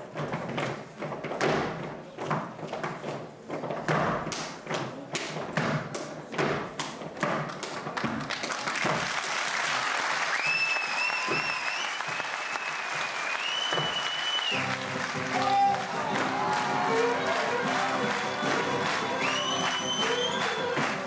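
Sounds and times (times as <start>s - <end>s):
boots stamping on wooden stage: 0.0s - 9.3s, 11.0s - 21.0s
applause: 8.2s - 21.0s
shrill wavering whistle: 10.3s - 14.7s, 18.1s - 20.8s.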